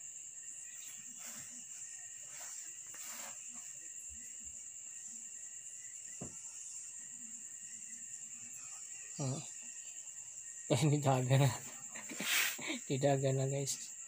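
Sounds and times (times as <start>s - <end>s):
high-pitched insect trill: 0.0s - 14.0s
soft knock: 6.2s - 6.4s.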